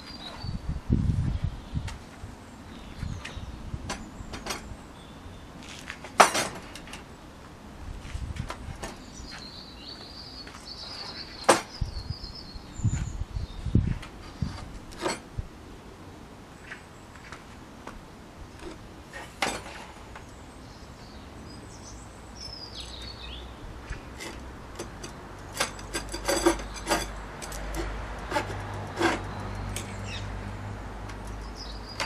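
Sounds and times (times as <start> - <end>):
bird chirping: 0.0 - 2.0, 8.9 - 13.9, 20.1 - 24.2, 29.0 - 30.4, 31.2 - 32.0
metal clinking on wood: 24.2 - 30.0.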